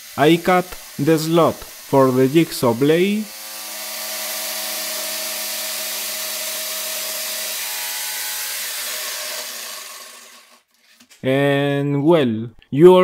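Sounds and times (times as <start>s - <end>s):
jigsaw cutting plastic sheet: 0.1s - 11.0s.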